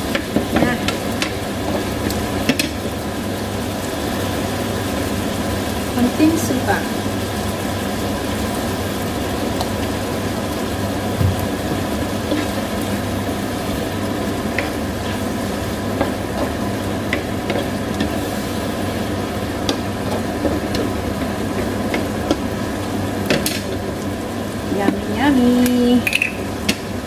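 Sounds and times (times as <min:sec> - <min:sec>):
spatula stirring and clicking: 0:00.0 - 0:02.8, 0:12.1 - 0:13.0, 0:14.0 - 0:24.1
food sizzling in a frying pan: 0:00.0 - 0:27.0.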